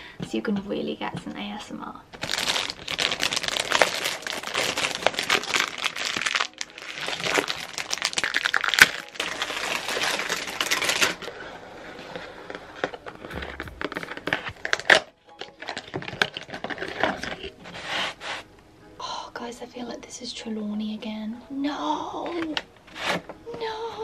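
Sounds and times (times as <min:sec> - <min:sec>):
cardboard box rustling: 0:02.2 - 0:15.0
foil wrapper crinkling: 0:02.2 - 0:17.9.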